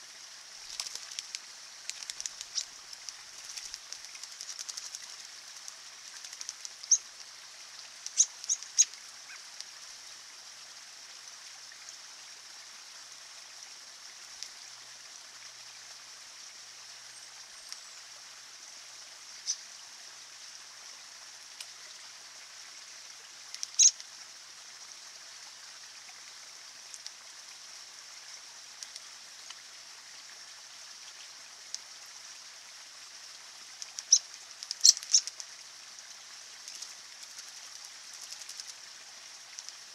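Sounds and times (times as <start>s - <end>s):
stream trickling over rocks: 0.0s - 39.9s
birds' sharp high calls: 8.2s - 9.4s, 23.6s - 24.0s, 34.8s - 35.3s.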